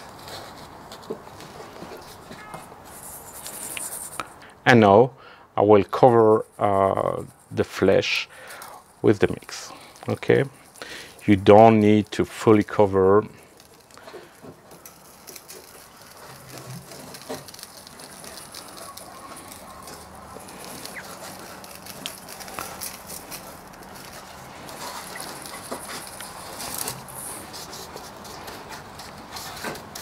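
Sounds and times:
salt pattering onto fish: 8.4 - 30.0.

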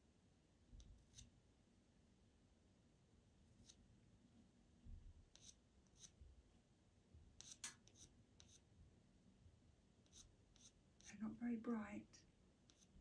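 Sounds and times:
pencil scratching on paper: 1.0 - 1.3, 3.6 - 3.8, 5.3 - 6.2, 7.4 - 8.7, 10.0 - 11.2, 12.6 - 13.0.

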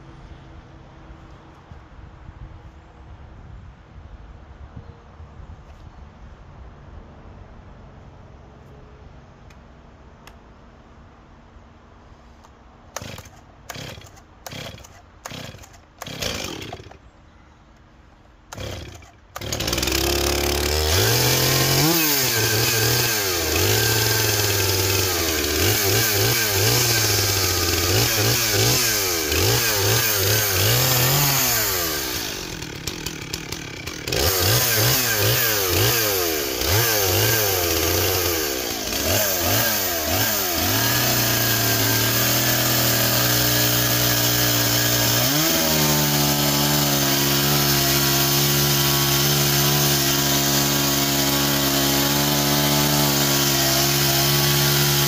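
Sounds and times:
chainsaw cutting log: 12.4 - 17.1, 18.5 - 55.0.

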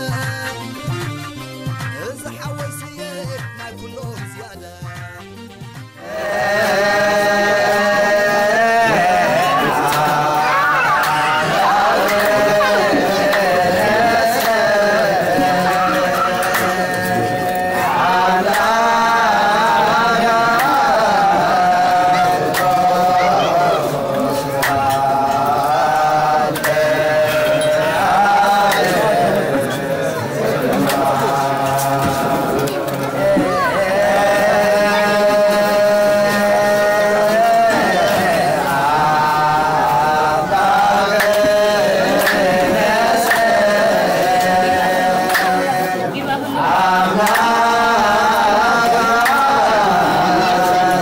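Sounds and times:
instrumental backing: 0.0 - 51.0
person chanting long notes: 6.0 - 51.0
sharp beat: 6.4 - 45.8.

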